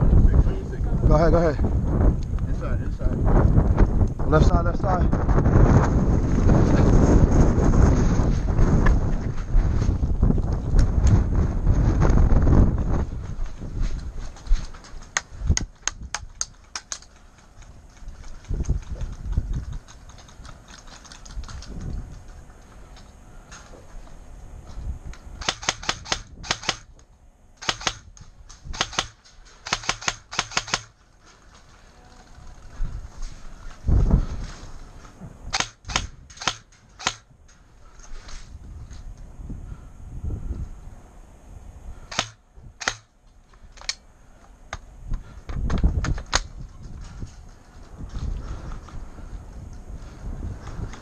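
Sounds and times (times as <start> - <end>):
airsoft gun firing bursts: 25.4 - 26.9, 27.6 - 31.0, 35.5 - 37.3, 42.1 - 43.2.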